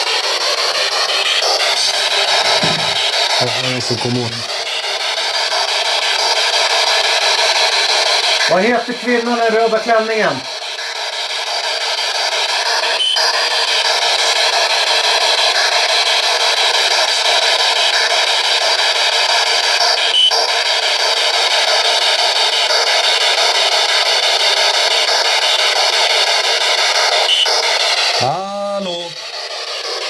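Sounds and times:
radio static hiss: 1.3 - 4.6, 26.8 - 30.0.

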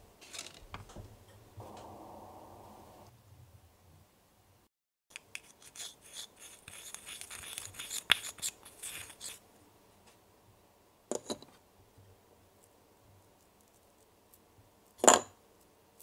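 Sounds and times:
spatula scraping glass bowl: 5.4 - 9.4.

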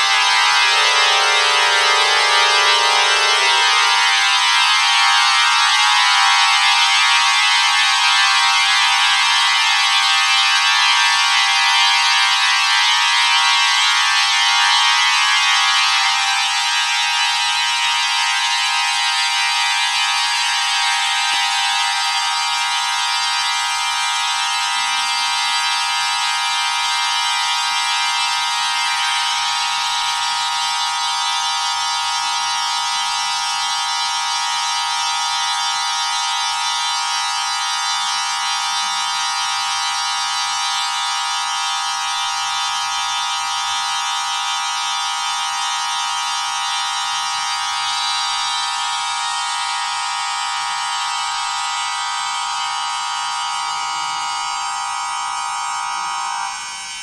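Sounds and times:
pipe organ chord: 0.0 - 6.5.

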